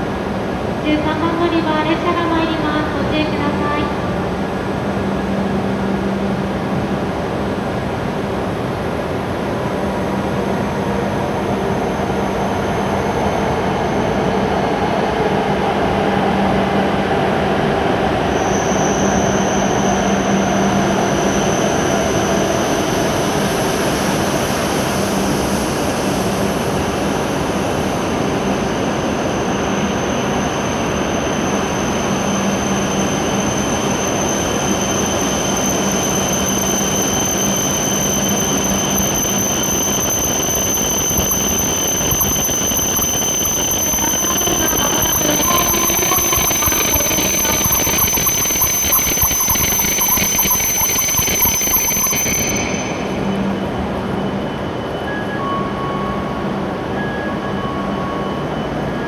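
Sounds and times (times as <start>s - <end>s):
thin high squeal: 32.2s - 53.6s.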